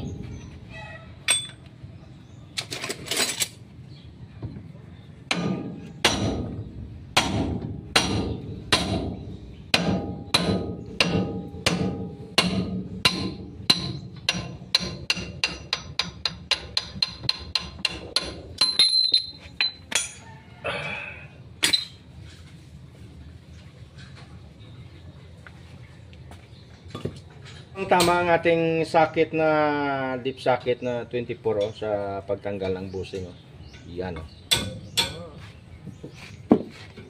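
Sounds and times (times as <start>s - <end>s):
metal clanks: 1.2s - 1.8s, 7.2s - 20.3s.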